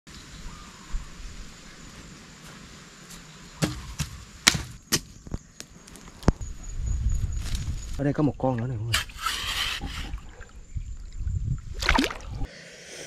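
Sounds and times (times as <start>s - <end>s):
sharp knocks: 3.6s - 5.1s.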